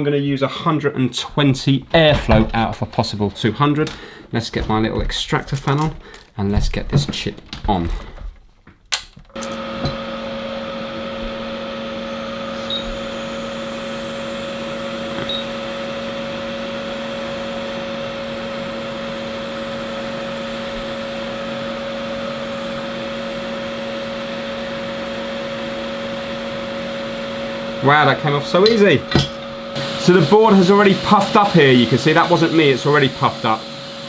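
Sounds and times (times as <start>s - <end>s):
extractor fan humming: 9.3s - 34.0s
hot-air gun blowing: 9.4s - 34.0s.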